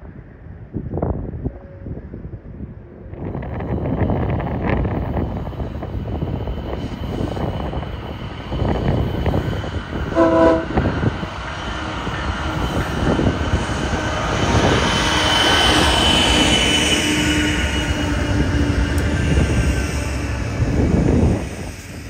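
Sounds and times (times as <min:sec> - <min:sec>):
train wheels on rails: 0:03.0 - 0:22.0
train horn toot: 0:10.1 - 0:11.0.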